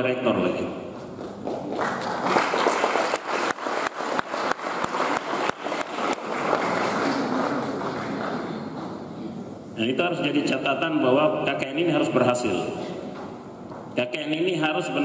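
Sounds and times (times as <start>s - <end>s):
audience applauding: 1.2s - 9.0s.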